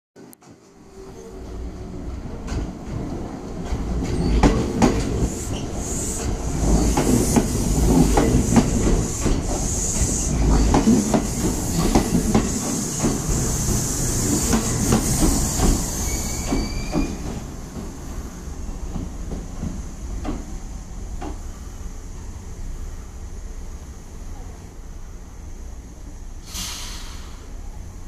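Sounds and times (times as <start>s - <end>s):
low train rumble: 0.2s - 28.0s
train wheels clicking over rail joints: 6.2s - 18.0s.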